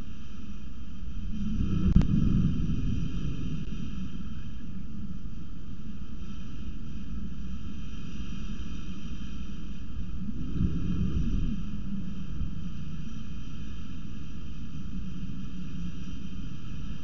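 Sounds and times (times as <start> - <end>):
thunderstorm rumbling: 1.2 - 5.2
thunder rumble: 1.2 - 5.3.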